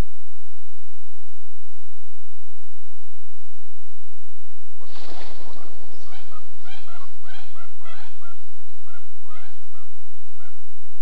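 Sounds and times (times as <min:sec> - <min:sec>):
burst of noise: 0:04.8 - 0:07.3
short repeated animal calls: 0:04.8 - 0:10.6.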